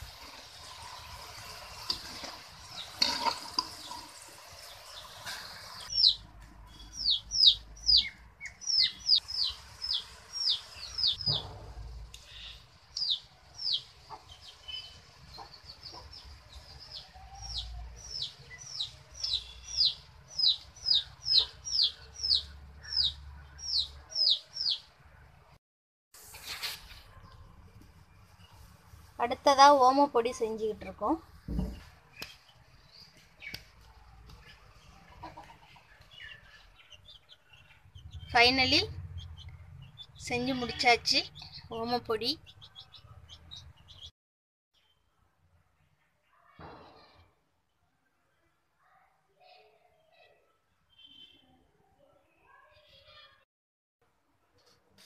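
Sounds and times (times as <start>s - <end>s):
snacks deep-frying in oil: 0.0s - 17.2s
bird chirping: 5.8s - 24.9s, 31.5s - 44.1s, 50.9s - 51.6s.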